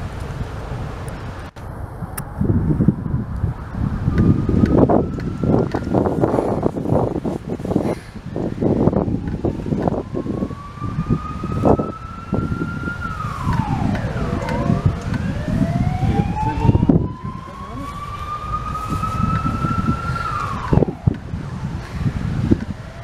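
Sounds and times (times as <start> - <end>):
siren wailing: 1.6 - 23.0.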